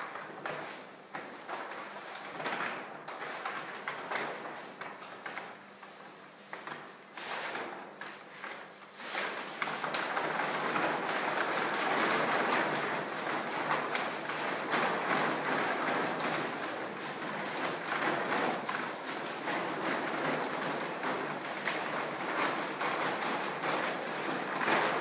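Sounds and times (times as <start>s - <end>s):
paper dragged across floor: 6.6s - 25.0s.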